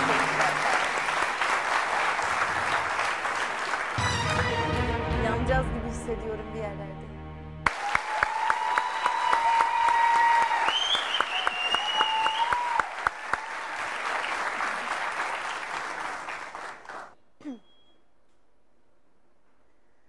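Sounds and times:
audience applauding: 0:00.0 - 0:04.9, 0:07.6 - 0:17.2.

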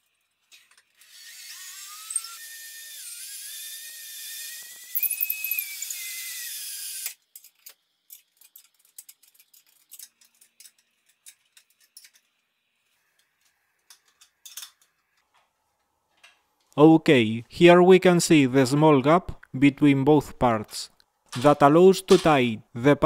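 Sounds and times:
power drill whining: 0:01.0 - 0:07.2.

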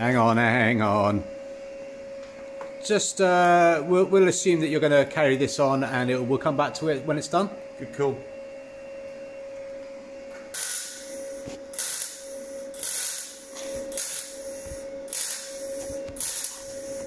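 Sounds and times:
steady hum: 0:00.0 - 0:17.0
welding arc sizzling: 0:10.5 - 0:17.0.

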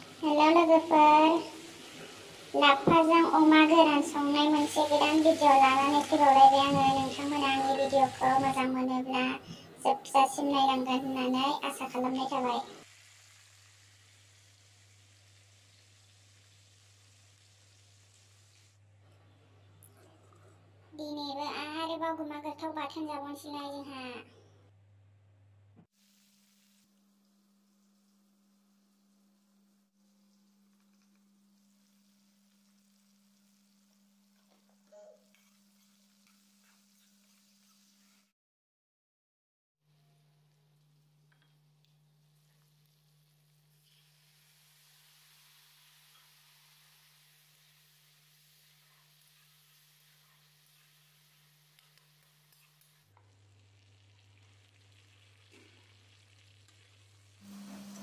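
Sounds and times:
meat sizzling in a pan: 0:00.0 - 0:08.8, 0:10.7 - 0:18.8, 0:26.0 - 0:38.3, 0:40.6 - 0:58.0
low electrical hum: 0:39.9 - 0:58.0
spoon clinking and scraping pan: 0:46.0 - 0:46.5.

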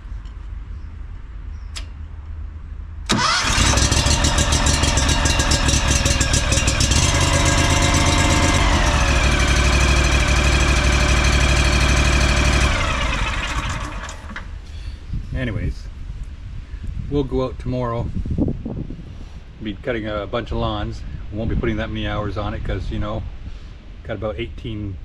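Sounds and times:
mower engine starting and running: 0:03.1 - 0:14.8.

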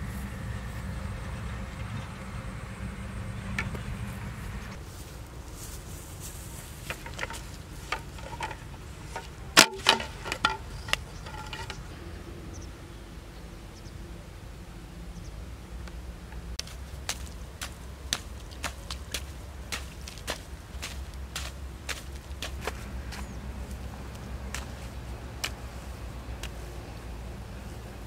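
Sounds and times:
bamboo and wooden stick knocking: 0:06.8 - 0:11.8.

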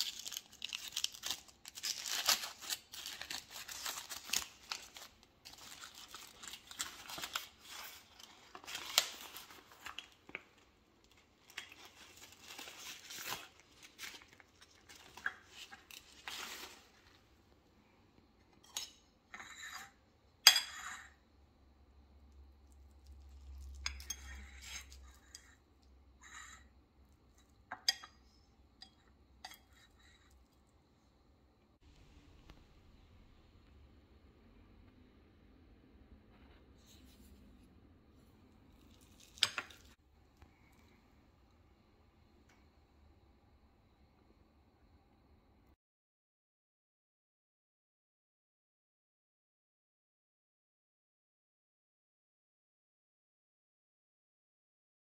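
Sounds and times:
leaves rustling and crinkling: 0:00.0 - 0:10.5, 0:11.4 - 0:17.1.

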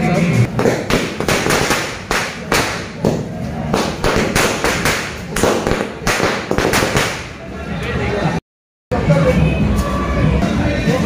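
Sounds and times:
firecrackers banging: 0:00.5 - 0:07.5.

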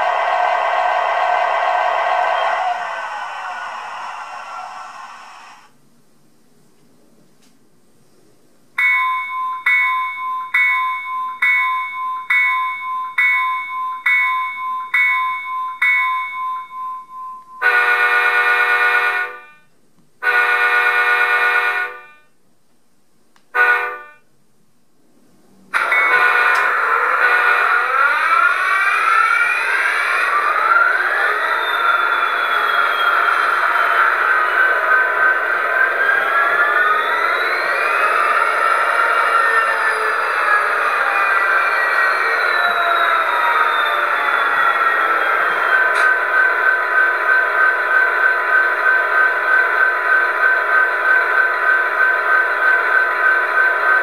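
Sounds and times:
engine whine rising in pitch: 0:00.0 - 0:05.8, 0:25.5 - 0:54.0
simulated diesel engine: 0:00.0 - 0:05.8, 0:25.7 - 0:54.0
locomotive bell ringing: 0:08.8 - 0:17.7, 0:25.8 - 0:28.0
locomotive horn blasts: 0:17.6 - 0:22.3, 0:23.6 - 0:24.2, 0:25.8 - 0:28.0.

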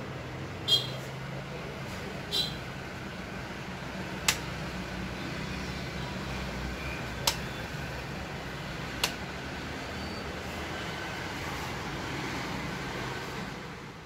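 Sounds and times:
sharp clicks: 0:04.2 - 0:04.5, 0:07.2 - 0:07.5, 0:09.0 - 0:09.2.

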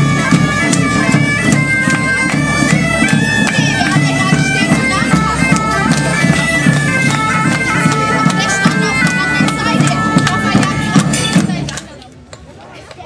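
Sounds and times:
high melody: 0:00.0 - 0:11.7
drums beating: 0:00.0 - 0:12.0.

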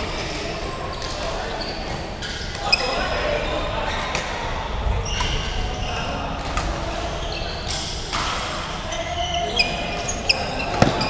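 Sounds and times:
racket hitting shuttlecock: 0:10.0 - 0:11.0.

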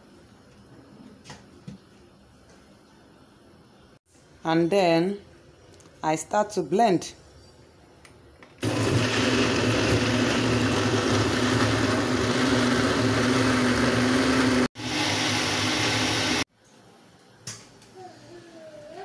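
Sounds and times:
electric blender running: 0:08.6 - 0:16.5.

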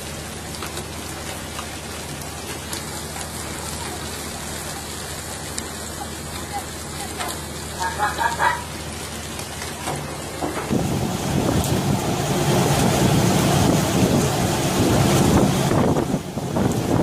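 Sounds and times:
sea splashing: 0:00.0 - 0:17.0
voices calling: 0:05.7 - 0:08.9
wind rushing: 0:10.7 - 0:17.0.

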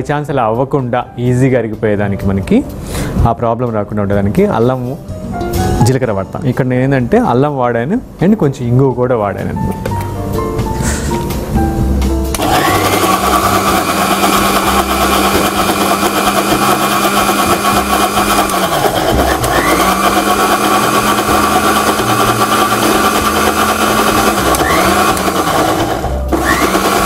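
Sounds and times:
mixer grinder motor running: 0:12.3 - 0:27.0.

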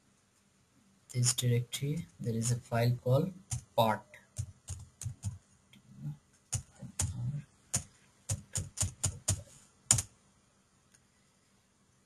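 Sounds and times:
computer keyboard typing: 0:03.4 - 0:05.4, 0:06.5 - 0:10.1.

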